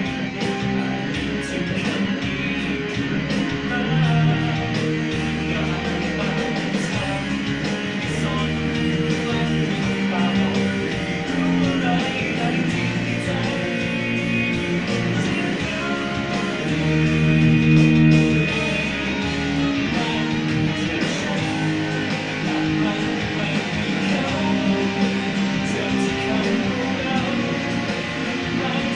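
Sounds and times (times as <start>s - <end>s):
electric guitar playing rock: 0.0s - 28.9s.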